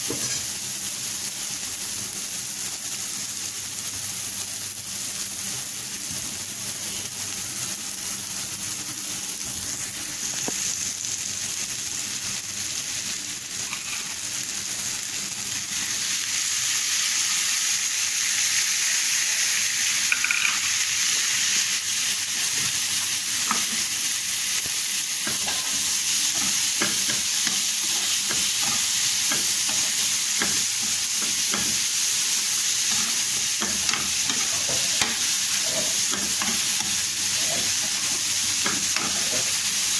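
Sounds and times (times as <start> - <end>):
onion sizzling in a frying pan: 0.0 - 39.9
spoon stirring in a pan: 25.2 - 31.9, 32.8 - 39.6.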